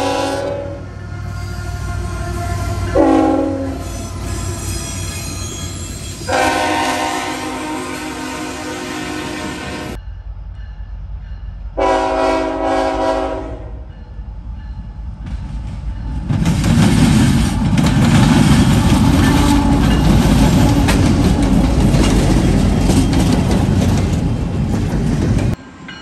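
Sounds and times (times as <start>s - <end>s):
locomotive horn: 0.0s - 10.0s, 11.8s - 13.9s, 17.6s - 22.4s
wheels rolling on rails: 15.2s - 25.6s.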